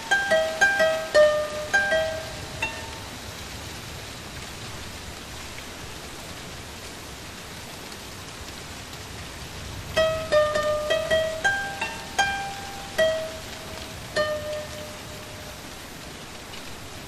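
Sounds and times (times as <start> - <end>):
plucked string melody: 0.0 - 3.1, 10.0 - 15.7
steady hiss: 0.0 - 17.0.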